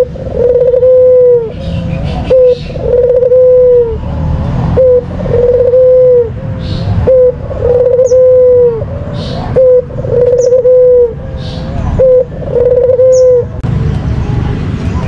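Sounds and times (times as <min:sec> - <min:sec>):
dove cooing: 0:00.0 - 0:04.1, 0:04.8 - 0:13.6.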